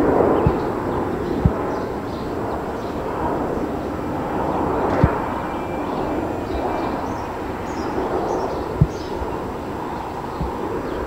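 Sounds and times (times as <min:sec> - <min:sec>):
jet aircraft passing low: 0:00.0 - 0:11.0.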